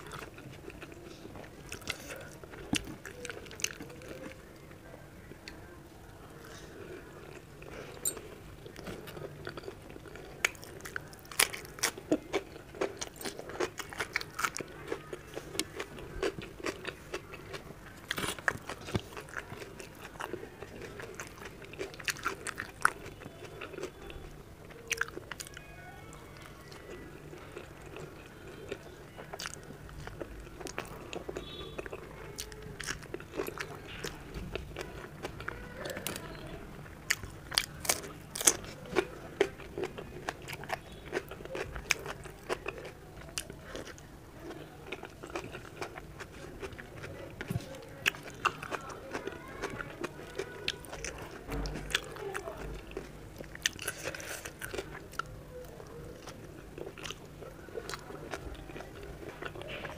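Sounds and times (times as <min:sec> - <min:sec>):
crunchy bites and chewing: 0:06.4 - 0:25.7, 0:37.0 - 0:59.9.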